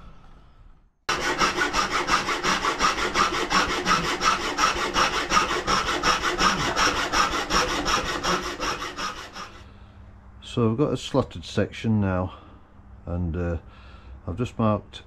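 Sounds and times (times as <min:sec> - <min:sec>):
hacksaw cutting metal: 0:01.1 - 0:09.6.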